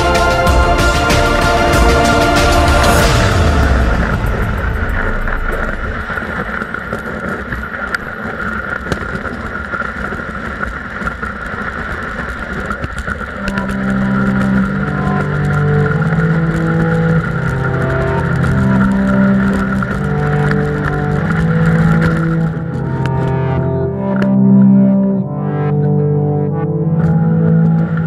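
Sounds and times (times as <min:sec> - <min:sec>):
background music with chords: 0:00.0 - 0:06.3, 0:13.4 - 0:28.0
sled runners scraping snow: 0:00.0 - 0:23.2.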